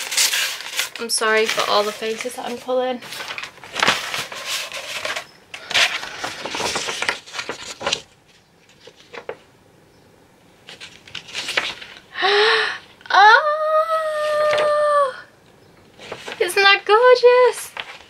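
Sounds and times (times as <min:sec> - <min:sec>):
paper rustling and crinkling: 0:00.0 - 0:09.5, 0:10.6 - 0:12.2, 0:15.9 - 0:18.0.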